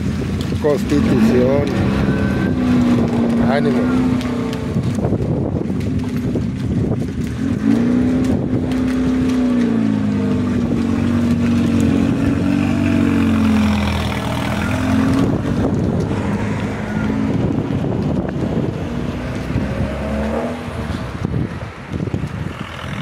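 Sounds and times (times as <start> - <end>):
van engine accelerating away: 7.4 - 18.2.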